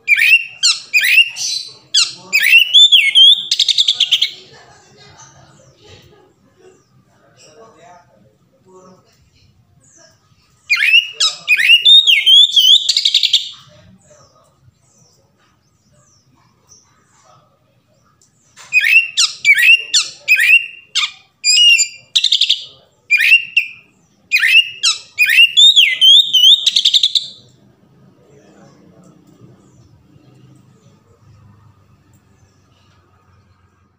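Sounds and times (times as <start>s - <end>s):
bird singing whistled phrases: 0.1s - 4.3s, 10.7s - 13.6s, 18.7s - 27.4s.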